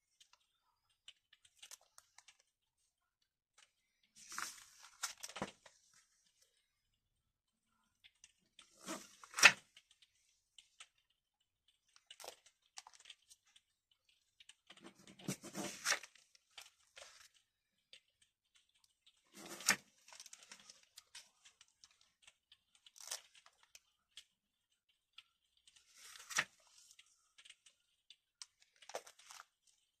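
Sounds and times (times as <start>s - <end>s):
plastic pages rustling: 0.1s - 2.6s, 3.7s - 6.6s, 8.1s - 10.9s, 11.8s - 24.4s, 25.2s - 30.0s
page flapping: 4.2s - 6.0s, 8.6s - 9.6s, 14.6s - 17.4s, 19.3s - 22.0s, 25.7s - 27.6s.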